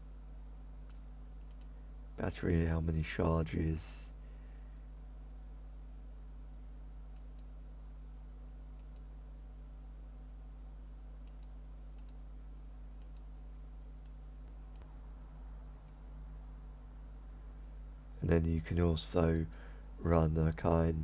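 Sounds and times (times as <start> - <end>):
low electrical hum: 0.0 - 21.0
computer mouse clicking: 0.8 - 1.7, 7.1 - 7.5, 8.7 - 9.1, 11.2 - 12.2, 13.0 - 13.3.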